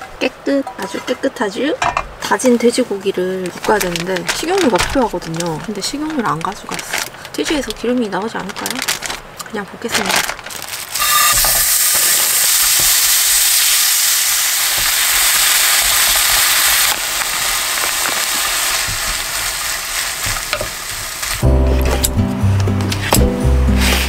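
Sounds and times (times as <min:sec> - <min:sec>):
meat sizzling in a frying pan: 0:10.7 - 0:21.4
background music: 0:21.4 - 0:24.0.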